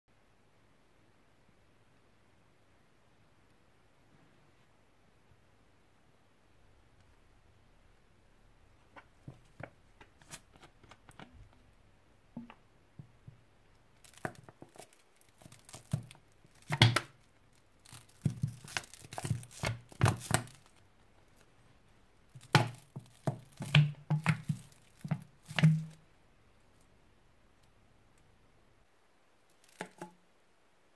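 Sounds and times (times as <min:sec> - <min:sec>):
plastic bottle crinkling: 0:13.8 - 0:21.5, 0:22.3 - 0:26.0, 0:29.5 - 0:30.2
slime squelching: 0:13.8 - 0:21.7, 0:22.3 - 0:26.0.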